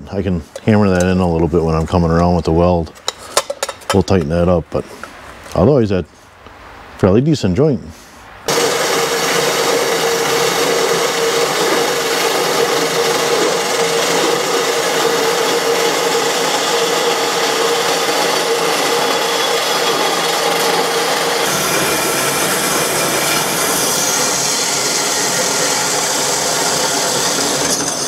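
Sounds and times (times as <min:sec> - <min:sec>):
power tool grinding metal: 0:08.5 - 0:28.0.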